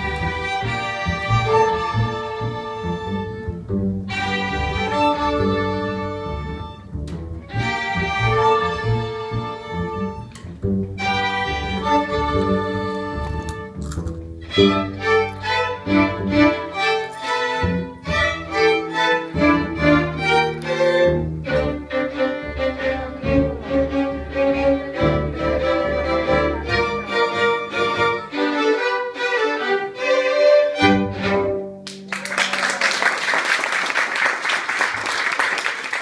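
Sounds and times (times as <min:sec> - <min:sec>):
string ensemble playing: 0:00.0 - 0:36.0
audience applause: 0:31.8 - 0:36.0.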